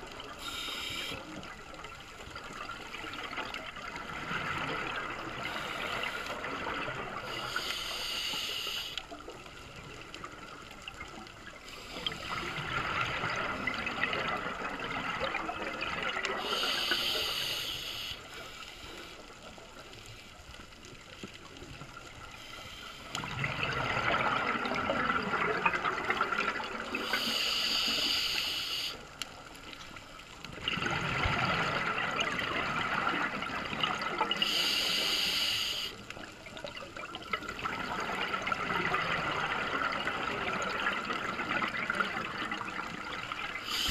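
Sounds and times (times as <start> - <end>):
diver breathing through regulator: 0.4 - 1.3, 7.3 - 9.0, 16.4 - 19.2, 34.4 - 36.0, 43.6 - 43.9.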